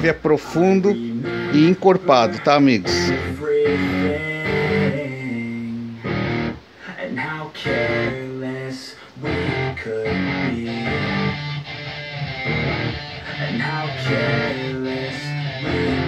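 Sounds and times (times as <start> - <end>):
music through stereo speakers: 9.3 - 16.0.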